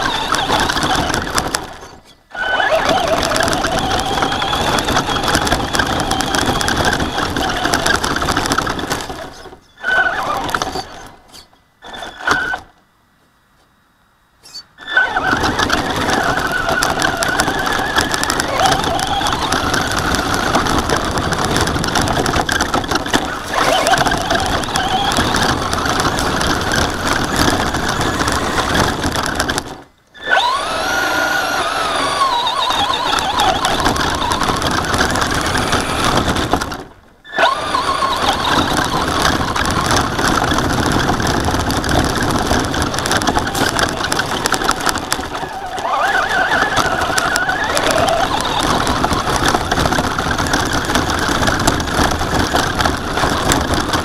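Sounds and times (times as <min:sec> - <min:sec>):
rc truck drivetrain and tyres: 0:00.0 - 0:12.9, 0:14.4 - 0:54.0
electric motor whine: 0:14.8 - 0:29.6, 0:30.2 - 0:36.7, 0:37.3 - 0:54.0.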